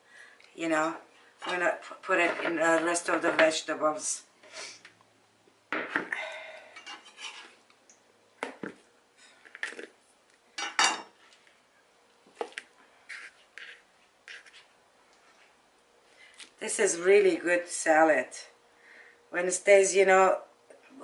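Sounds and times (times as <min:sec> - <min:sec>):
knife scraping a bowl: 0:06.8 - 0:07.6, 0:13.1 - 0:14.7.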